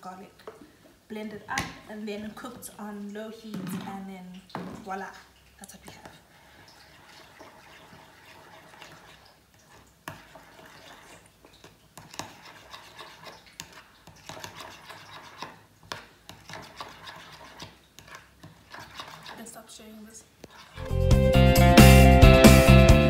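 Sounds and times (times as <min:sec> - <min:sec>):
spoon stirring sauce in bowl: 0:05.7 - 0:19.8.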